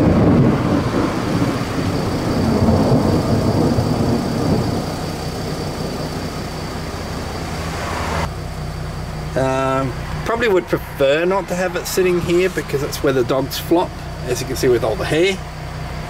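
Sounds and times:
thunder clap: 0:00.0 - 0:08.3
thunder rumbling: 0:00.0 - 0:16.0.

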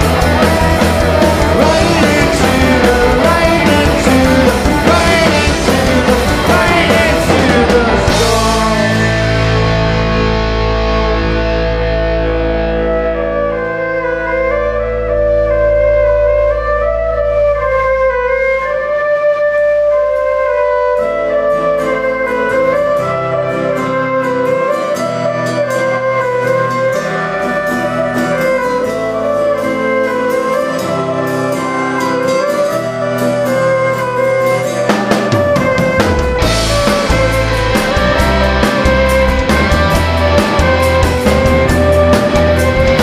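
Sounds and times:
band playing drums bass guitars: 0:00.0 - 0:18.2, 0:19.8 - 0:43.0
fiddle melody: 0:00.0 - 0:43.0
cymbals: 0:19.7 - 0:43.0.

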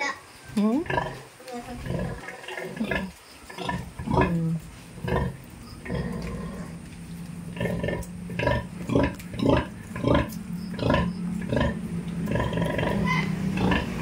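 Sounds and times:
sow grunting: 0:00.6 - 0:14.0
low hum: 0:04.2 - 0:14.0.

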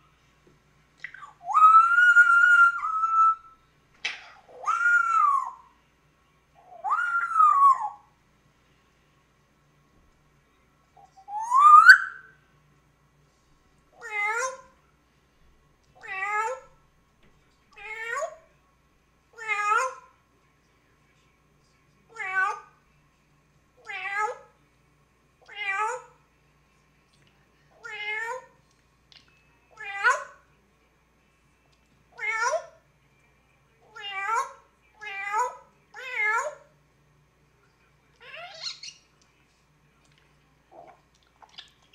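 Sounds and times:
parrot imitating cat meow: 0:14.0 - 0:14.7, 0:16.0 - 0:16.7, 0:19.4 - 0:20.1, 0:22.1 - 0:22.7, 0:23.8 - 0:24.5, 0:25.5 - 0:26.2, 0:27.8 - 0:28.5, 0:29.8 - 0:30.4, 0:32.2 - 0:32.8, 0:33.9 - 0:36.6, 0:38.2 - 0:38.9.

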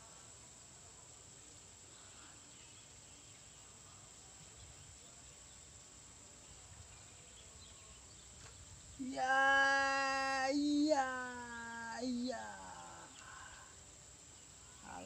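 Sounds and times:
high-pitched insect drone: 0:08.9 - 0:15.0.

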